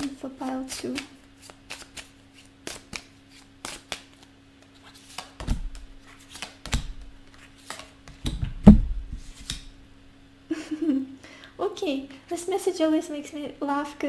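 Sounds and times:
cards being shuffled: 0.0s - 8.4s, 9.1s - 9.7s
faint low hum: 0.0s - 14.0s
cards thumping on table: 5.1s - 7.1s.

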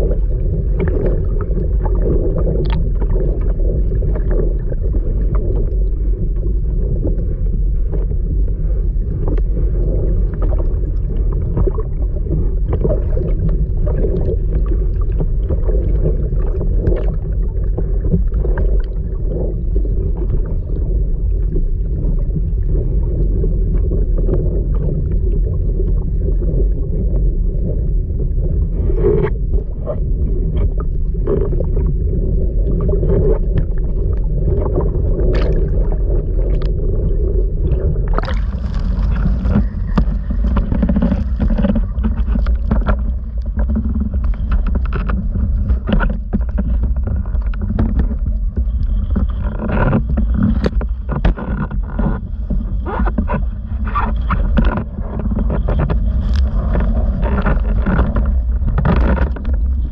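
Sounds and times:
muffled water sloshing: 0.0s - 59.9s
water splashing: 30.6s - 59.9s.

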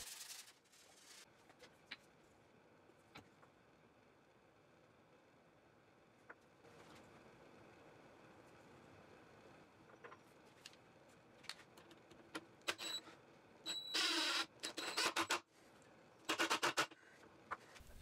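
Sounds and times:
screw squeaking into wood: 13.7s - 15.4s.

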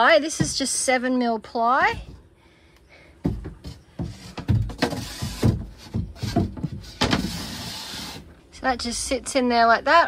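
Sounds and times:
plywood knocking against timber: 3.2s - 7.3s.

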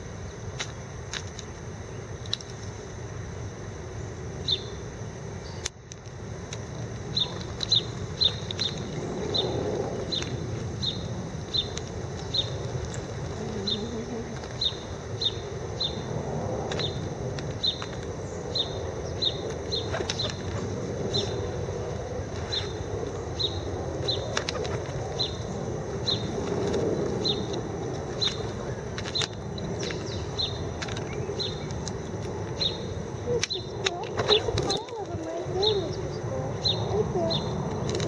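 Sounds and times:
low background hum: 0.0s - 38.0s
pigeons flapping wings: 19.4s - 23.2s, 23.9s - 25.6s.

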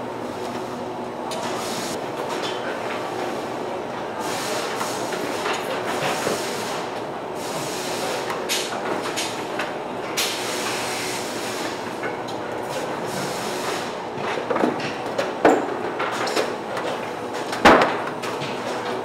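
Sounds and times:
conveyor machinery din: 0.0s - 19.0s.

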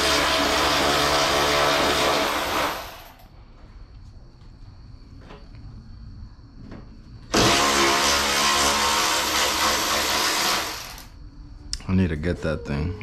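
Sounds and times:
power tool motor whining: 7.3s - 11.1s.

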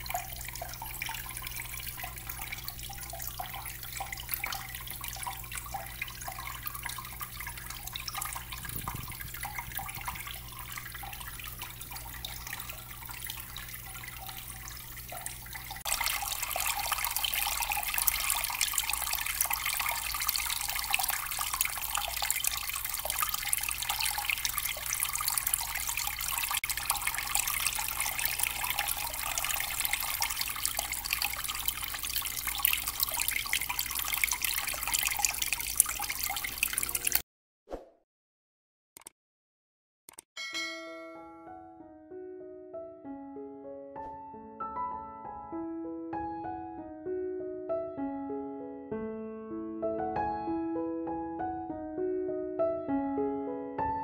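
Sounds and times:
water trickling into a basin: 0.0s - 37.2s.

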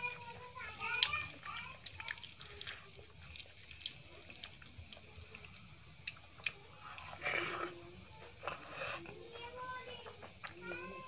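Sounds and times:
fingers squishing rice: 0.5s - 9.2s.

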